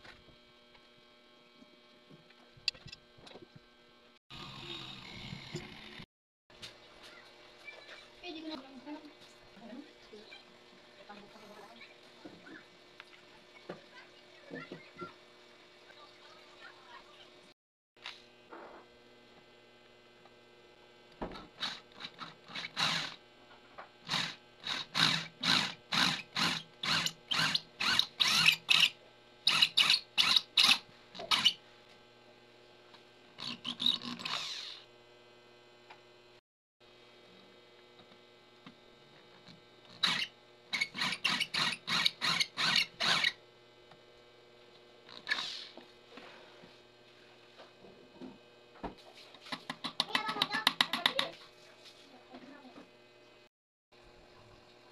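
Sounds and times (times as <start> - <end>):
drill press motor hum: 0.0 - 6.1, 18.0 - 48.9
drill bit cutting metal: 4.3 - 6.1, 21.6 - 23.2, 24.1 - 31.6, 33.4 - 34.9, 39.9 - 43.4.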